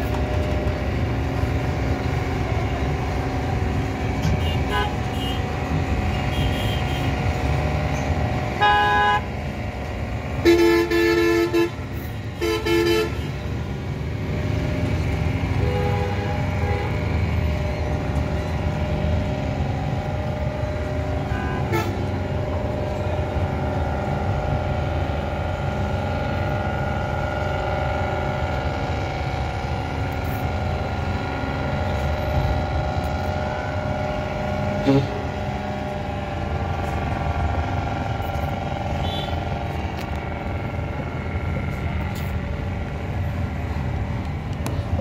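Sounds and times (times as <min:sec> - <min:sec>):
low rumble of engines: 0:00.0 - 0:45.0
vehicle horns honking: 0:04.2 - 0:07.2, 0:08.6 - 0:09.3, 0:10.4 - 0:13.5, 0:15.6 - 0:17.0, 0:21.2 - 0:22.2, 0:34.8 - 0:35.2, 0:38.9 - 0:39.5.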